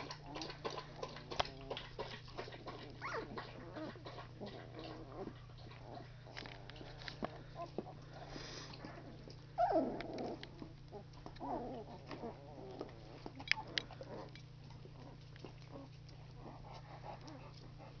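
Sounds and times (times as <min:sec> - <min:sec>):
small clicks and rustles: 0:00.4 - 0:09.4
puppies whimpering: 0:02.6 - 0:18.0.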